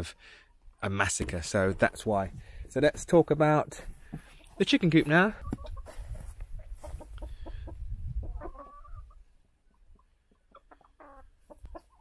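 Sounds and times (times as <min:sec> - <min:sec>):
chickens clucking: 0:04.0 - 0:12.0.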